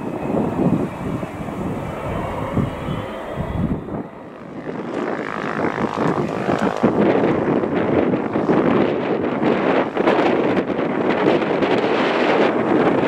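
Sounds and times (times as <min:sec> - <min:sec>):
faint falling whine: 0:00.0 - 0:07.0
airliner engines rushing: 0:00.0 - 0:13.0.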